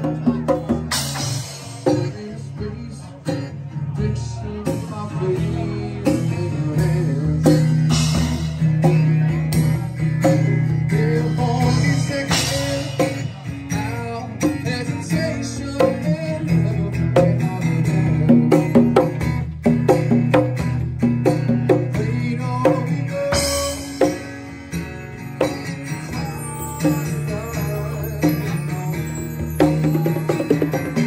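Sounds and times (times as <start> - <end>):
congas and bongos: 0.0 - 2.3, 17.1 - 31.0
person singing: 0.0 - 8.5, 10.3 - 18.7, 21.8 - 24.2, 25.9 - 31.0
acoustic guitar: 0.0 - 31.0.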